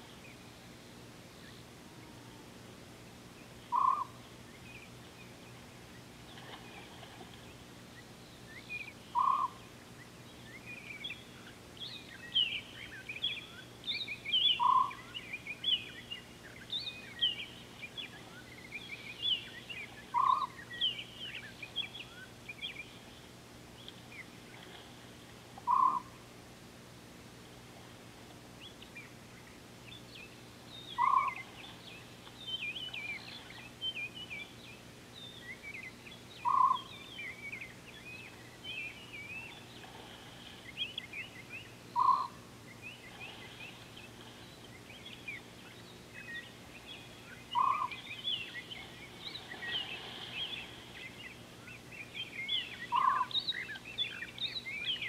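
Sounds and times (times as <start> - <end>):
faint steady hum: 0.0 - 55.0
birds twittering and chirping: 3.2 - 26.3, 27.3 - 55.0
bird single-note call: 36.4 - 37.4, 42.0 - 42.4.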